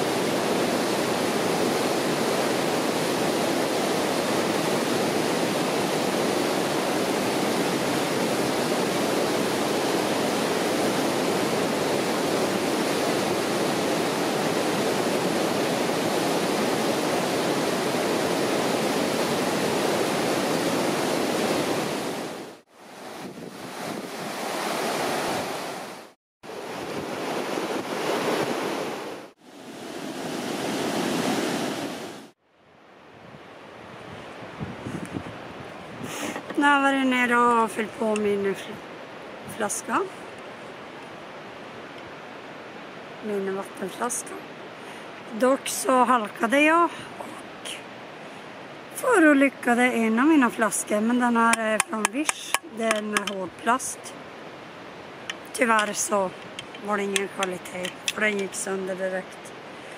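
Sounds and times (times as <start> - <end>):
river rapids rushing: 0.0 - 32.2, 50.2 - 59.9.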